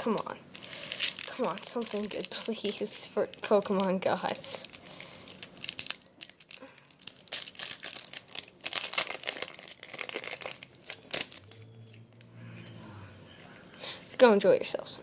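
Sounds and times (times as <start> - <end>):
foil wrapper tearing and crinkling: 0.1 - 11.6.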